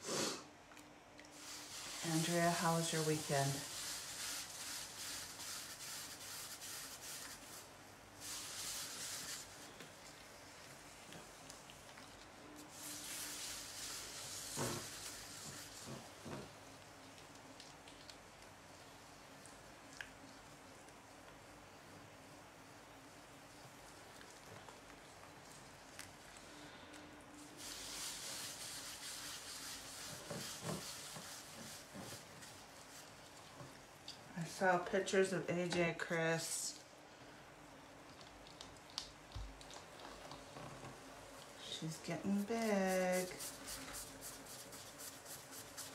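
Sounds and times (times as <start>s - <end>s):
faint steady hum: 0.0s - 45.9s
wet hands rubbing clay on wheel: 1.4s - 11.6s, 12.6s - 17.9s, 27.6s - 33.9s, 41.6s - 45.9s.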